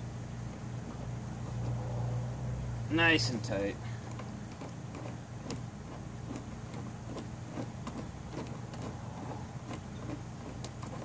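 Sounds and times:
steady low hum: 0.0 - 11.0
tool ticking: 3.5 - 11.0.

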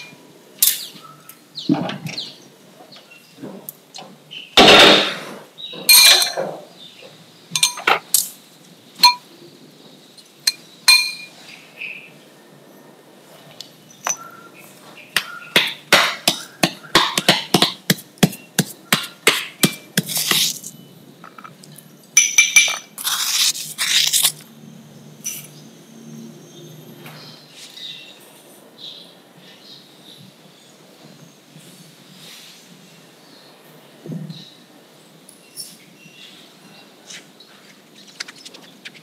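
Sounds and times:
ceramic bowl clinking: 7.6 - 8.0, 10.5 - 11.3, 22.2 - 22.9
stone pestle pounding in mortar: 15.2 - 20.5
scraping in a mortar: 16.1 - 21.6, 22.6 - 24.5.

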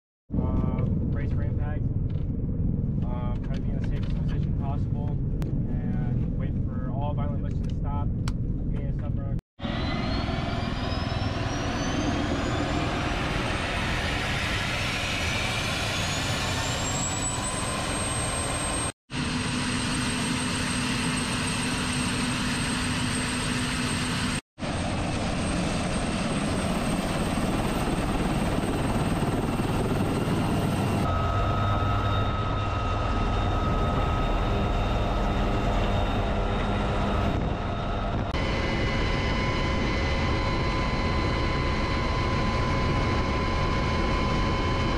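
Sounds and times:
helicopter engine and rotor: 0.4 - 6.6, 9.6 - 44.9
high turbine whine: 9.6 - 44.9.

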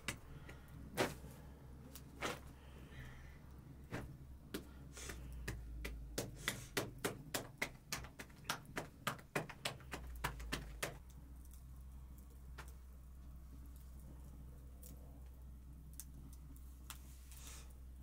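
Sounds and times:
hands slapping bread dough: 0.0 - 1.4, 3.9 - 11.1.

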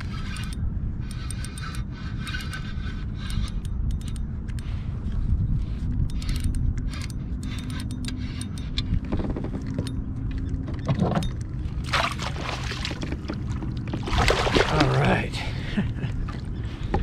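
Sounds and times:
spinning reel whirring and clicking: 0.0 - 10.1
rushing splashing water: 14.0 - 15.1.

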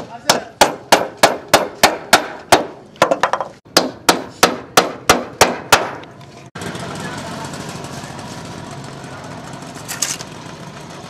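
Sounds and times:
hammer striking nail into wood: 0.0 - 6.1.

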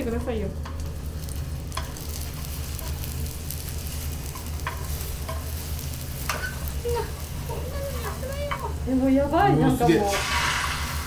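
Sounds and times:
egg sizzling in a frying pan: 0.0 - 11.0
chopsticks clicking against pan: 1.7 - 2.0, 4.3 - 5.5.

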